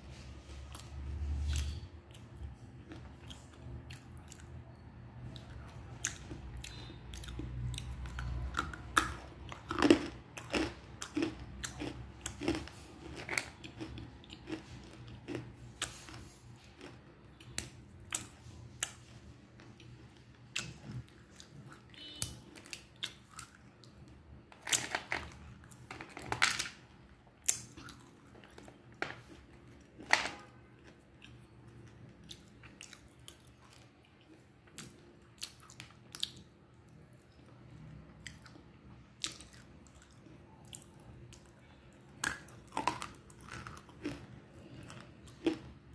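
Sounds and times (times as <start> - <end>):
chewing crunchy clay: 0.7 - 24.0, 39.2 - 45.9.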